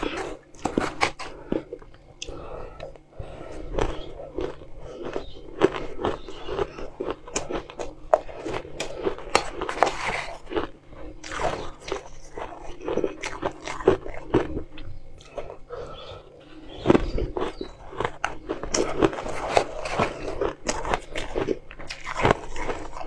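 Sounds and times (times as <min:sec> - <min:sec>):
crunching crushed ice: 0:03.7 - 0:14.6, 0:17.0 - 0:23.0.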